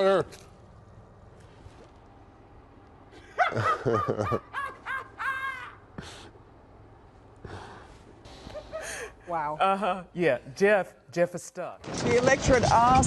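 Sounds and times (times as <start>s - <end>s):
man crying out: 4.4s - 6.0s.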